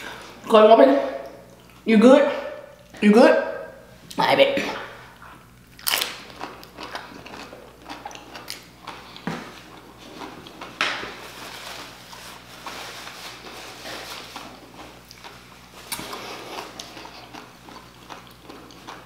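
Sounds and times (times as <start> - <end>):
chewing crunchy chip: 5.6 - 10.8, 14.1 - 19.0.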